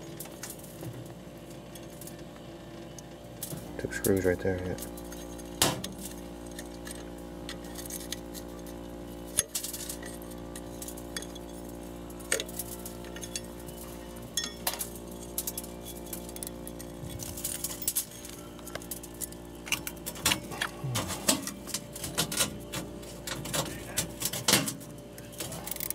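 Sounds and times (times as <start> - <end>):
steady hum: 0.0 - 25.9
small metallic clinks and ticks: 3.0 - 22.5.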